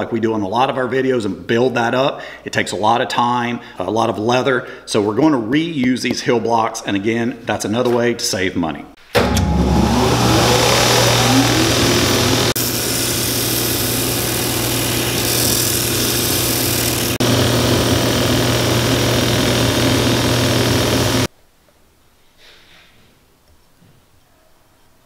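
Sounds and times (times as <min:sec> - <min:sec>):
sanding machine humming: 0:09.2 - 0:21.3.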